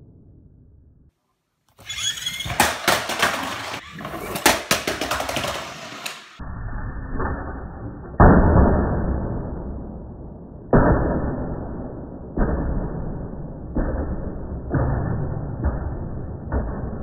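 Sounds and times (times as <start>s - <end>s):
toy truck wheels rumbling: 1.8s - 6.4s
rapid clacks and knocks: 2.5s - 6.3s.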